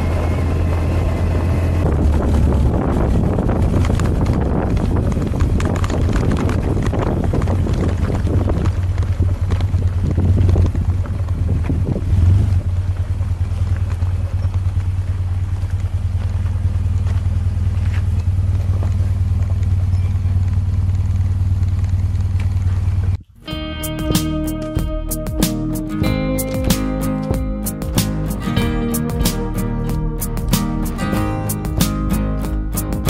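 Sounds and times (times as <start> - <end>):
tyres crunching on gravel: 0.0 - 23.1
motorcycle engine running: 0.0 - 33.0.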